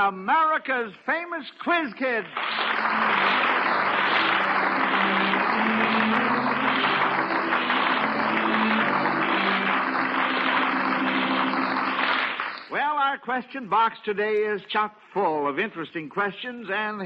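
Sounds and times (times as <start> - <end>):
audience applauding: 2.2 - 12.8
music playing held notes: 2.7 - 12.4.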